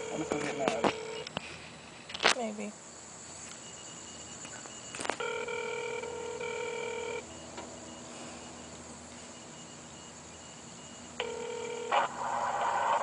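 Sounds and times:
telephone line click: 0.0s - 1.3s, 4.6s - 7.8s
telephone ring tone: 0.0s - 1.3s, 3.6s - 13.0s.

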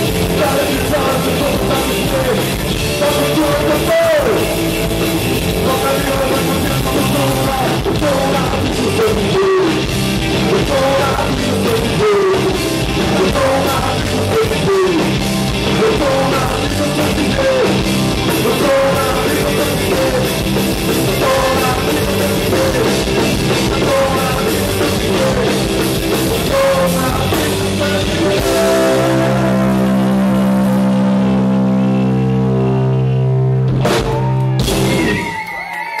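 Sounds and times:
drum kit: 0.0s - 35.8s
electric guitars: 0.0s - 36.0s
shouted vocals: 34.1s - 36.0s.

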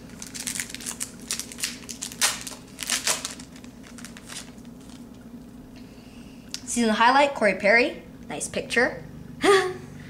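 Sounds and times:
trading cards rustling and scraping: 0.2s - 5.1s.

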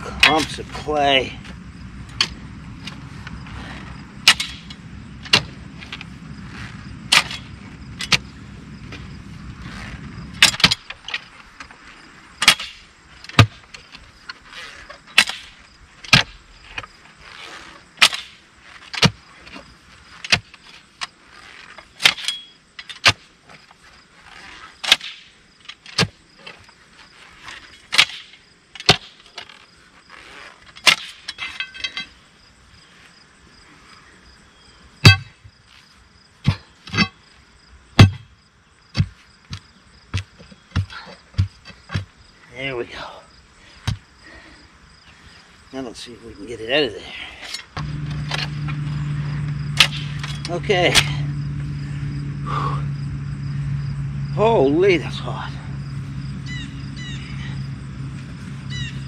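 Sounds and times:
digging bar striking rocky ground: 0.0s - 1.3s, 2.1s - 9.1s, 9.7s - 11.8s, 12.4s - 23.7s, 24.4s - 26.7s, 27.4s - 32.2s, 35.0s - 35.6s, 36.4s - 37.3s, 37.9s - 42.3s, 47.4s - 51.3s
metal tools clinking: 22.2s - 23.0s, 30.7s - 32.2s, 47.4s - 51.3s
low steady hum: 47.7s - 59.0s.

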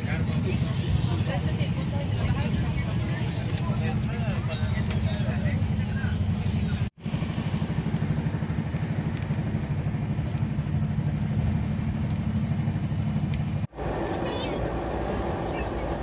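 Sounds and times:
train rumble inside coach: 12.0s - 16.0s.

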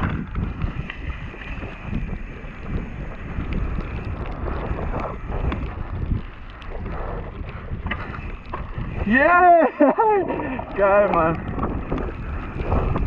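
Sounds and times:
bike knocks and rattles: 0.0s - 6.8s
tyres rumbling on wet gravel: 0.0s - 13.0s
wind rushing over microphone: 0.0s - 13.0s.

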